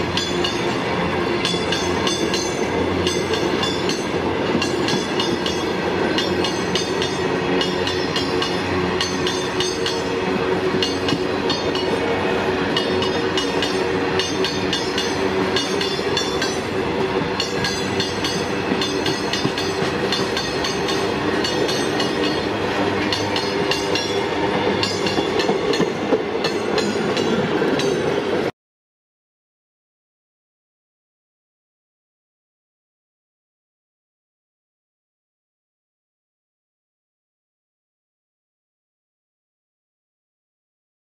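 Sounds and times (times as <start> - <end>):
train wheels clattering: 1.4 - 12.0, 12.6 - 28.4.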